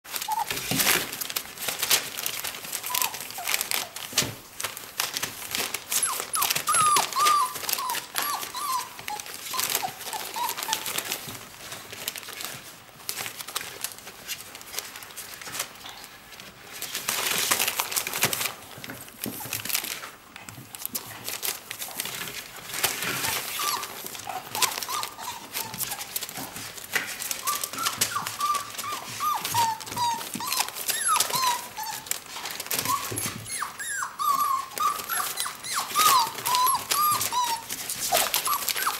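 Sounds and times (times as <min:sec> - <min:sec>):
puppies whining: 0:00.1 - 0:01.9, 0:02.5 - 0:04.2, 0:05.5 - 0:11.4, 0:20.6 - 0:38.9
newspaper rustling under paws: 0:00.1 - 0:38.9.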